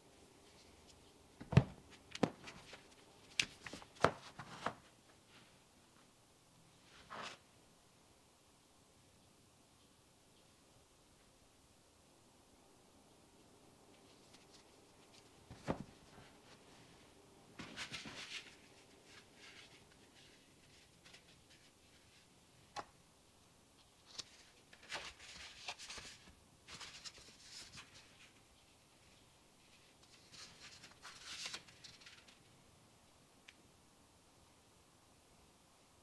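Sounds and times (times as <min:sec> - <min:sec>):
paper rustling and crinkling: 0:00.5 - 0:05.5, 0:14.0 - 0:16.8, 0:17.6 - 0:22.3, 0:23.9 - 0:28.4, 0:29.0 - 0:32.5.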